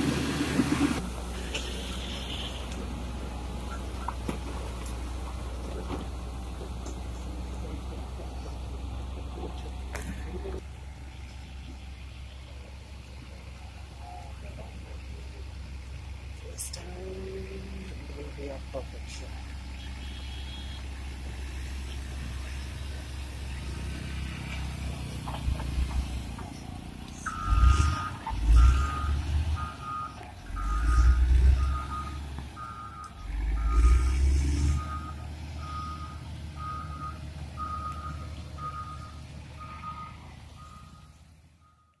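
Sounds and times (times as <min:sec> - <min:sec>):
diesel engine running: 0:00.0 - 0:42.0
reversing alarm beeping: 0:27.2 - 0:42.0.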